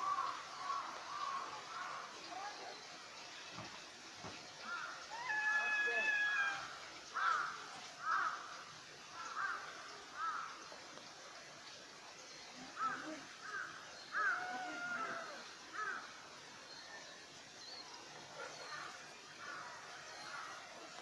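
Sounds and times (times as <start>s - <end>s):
crow cawing: 4.6s - 8.6s, 9.2s - 10.5s, 12.8s - 16.1s.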